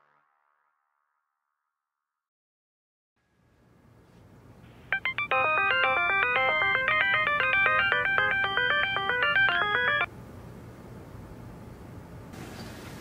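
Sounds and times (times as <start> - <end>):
phone ringtone melody: 4.9 - 10.1.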